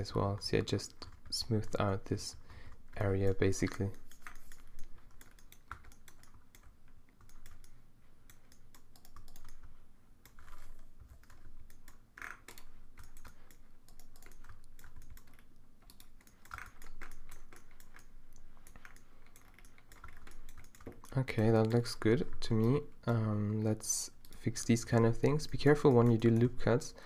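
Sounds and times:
computer keyboard clicking: 2.9 - 21.9.

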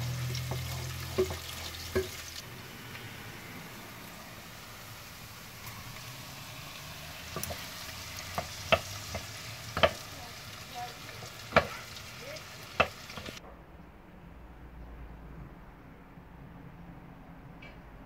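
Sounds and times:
vegetables sizzling in oil: 0.0 - 13.4
wooden spoon stirring: 0.2 - 2.4
spoon knocking against pan: 0.5 - 2.2, 8.3 - 10.1, 11.5 - 11.8, 12.7 - 13.4.

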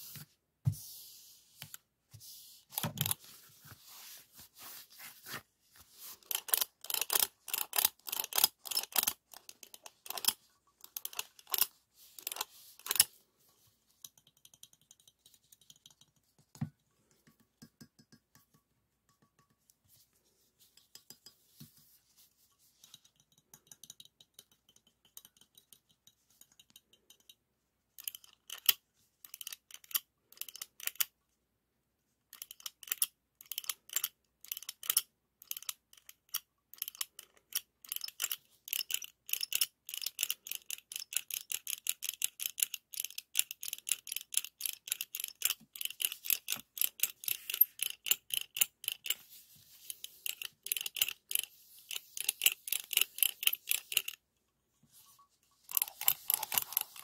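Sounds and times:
ice cream scoop mechanism clicking: 6.3 - 13.1.

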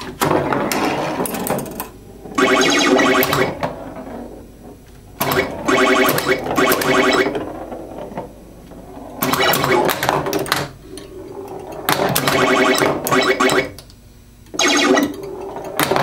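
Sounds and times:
pinball playfield clicks and knocks: 0.0 - 3.8, 5.2 - 8.4, 9.1 - 13.9, 14.5 - 16.0
electronic game sound effects: 2.4 - 3.6, 5.3 - 7.4, 9.2 - 10.0, 12.2 - 13.8, 14.6 - 15.2.

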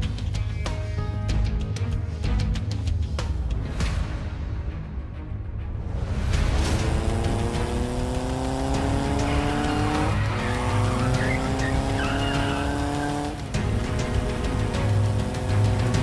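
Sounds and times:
motorcycle engine accelerating: 6.4 - 16.0.

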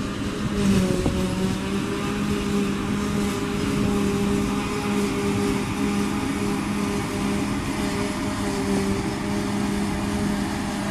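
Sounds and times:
forage harvester droning: 0.0 - 10.9
wind on microphone: 0.0 - 10.9.

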